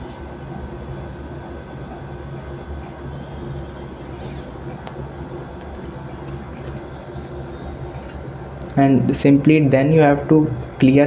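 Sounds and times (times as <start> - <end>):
room noise hum and hiss: 0.0 - 11.0.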